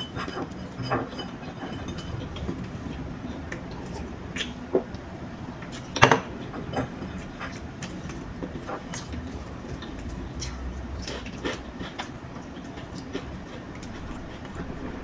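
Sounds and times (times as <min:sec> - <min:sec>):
chewing with mouth clicks: 0:07.2 - 0:14.9
low rumble: 0:09.2 - 0:12.4, 0:13.7 - 0:15.0.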